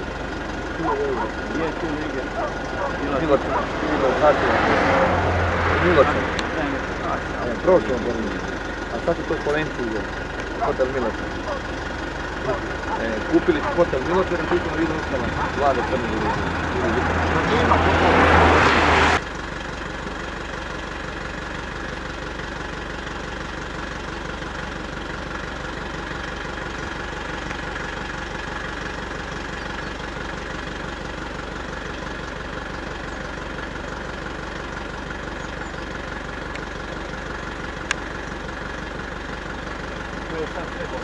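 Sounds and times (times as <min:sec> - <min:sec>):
car engine idling: 0:00.0 - 0:41.0
loud rush of noise: 0:16.3 - 0:19.2.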